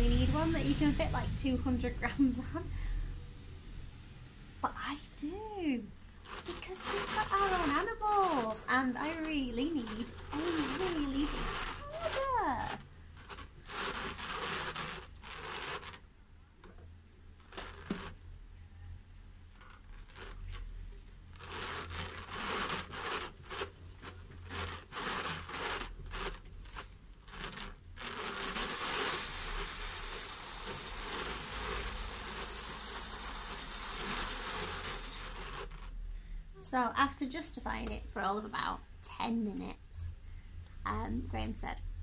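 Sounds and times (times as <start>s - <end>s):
fibre rubbing and tearing: 6.2s - 16.0s, 17.4s - 18.2s, 19.6s - 36.0s
drum carder brushing hiss: 6.3s - 16.0s, 27.3s - 35.9s.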